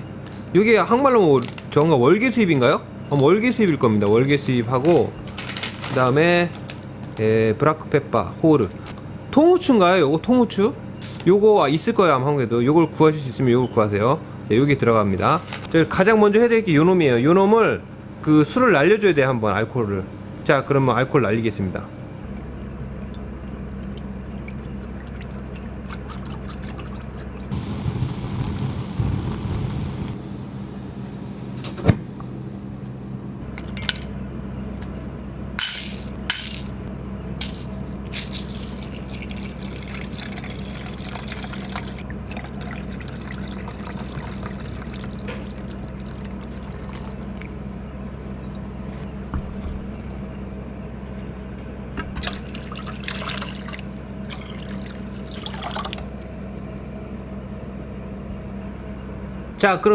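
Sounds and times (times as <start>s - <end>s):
low hum: 21.9s - 59.6s
wine pouring into bowl: 22.4s - 27.6s, 38.3s - 48.9s, 52.2s - 57.8s.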